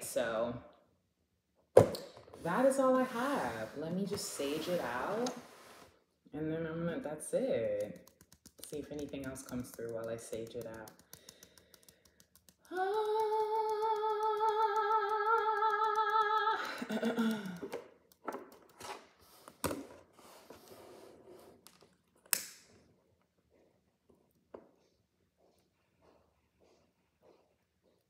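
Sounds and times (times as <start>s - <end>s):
woman humming: 12.7s - 17.6s.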